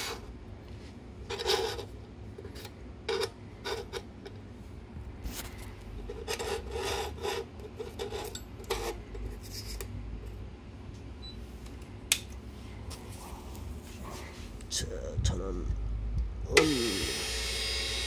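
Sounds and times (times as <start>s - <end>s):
table saw humming: 16.6s - 18.0s.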